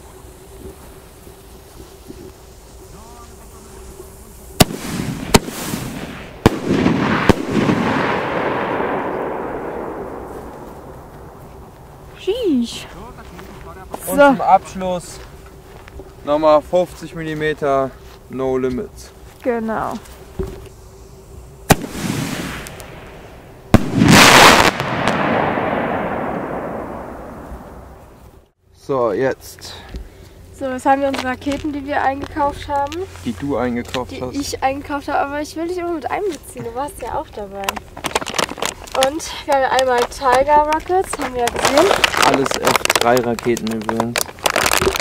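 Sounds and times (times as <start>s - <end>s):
crackling firework shower: 0.0s - 17.9s, 19.4s - 28.6s, 36.0s - 45.0s
firework bangs: 4.5s - 11.6s, 21.6s - 28.2s.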